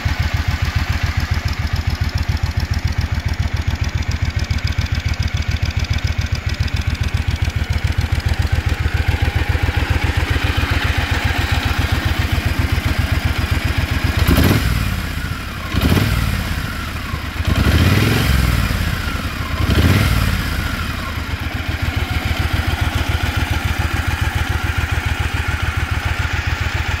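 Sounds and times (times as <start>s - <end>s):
motorcycle engine idling: 0.0s - 27.0s
engine revving: 12.7s - 22.7s.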